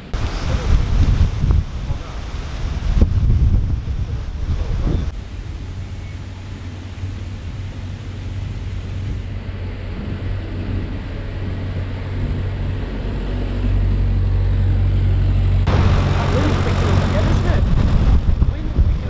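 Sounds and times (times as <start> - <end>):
diesel engine thrumming: 9.4 - 18.5.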